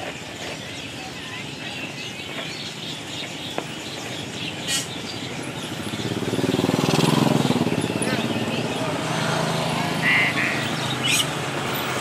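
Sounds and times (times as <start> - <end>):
caged birds chirping: 0.0 - 12.0
motorcycle engine approaching: 3.8 - 12.0.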